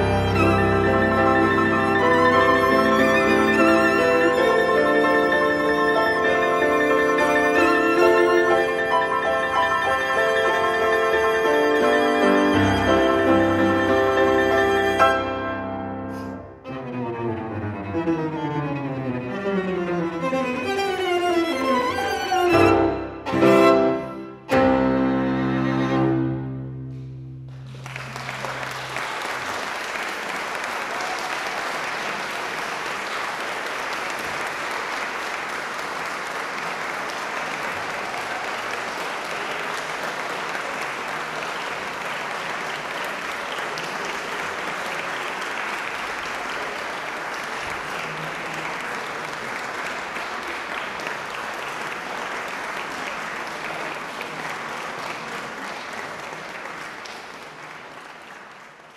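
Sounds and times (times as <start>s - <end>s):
audience applauding: 0.0s - 15.5s, 26.9s - 58.9s.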